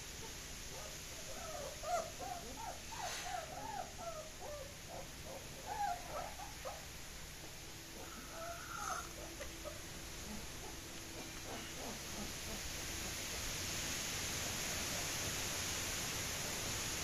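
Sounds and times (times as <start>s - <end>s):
puppies whimpering: 1.2s - 6.9s, 7.9s - 12.6s.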